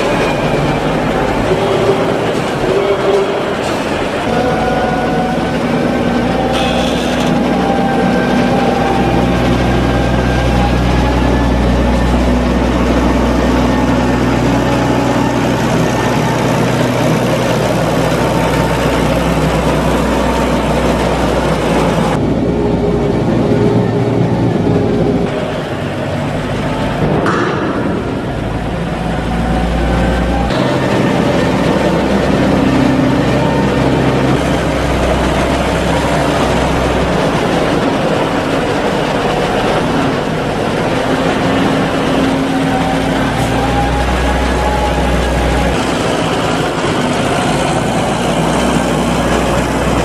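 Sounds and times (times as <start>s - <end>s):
tractor engine running: 0.0s - 50.0s.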